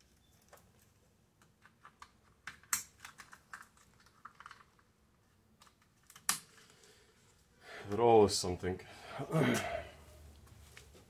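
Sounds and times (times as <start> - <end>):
plastic clicks and rattles: 0.4 - 4.9.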